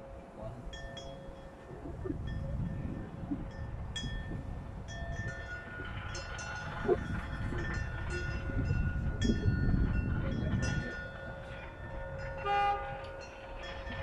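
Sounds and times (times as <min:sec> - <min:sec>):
short horn tone: 0:12.4 - 0:13.0.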